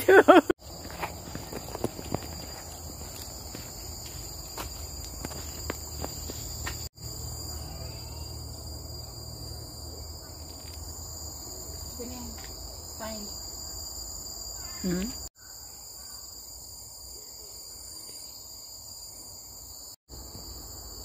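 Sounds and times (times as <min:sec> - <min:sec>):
insects droning: 0:00.0 - 0:21.0
light footsteps: 0:00.7 - 0:06.9.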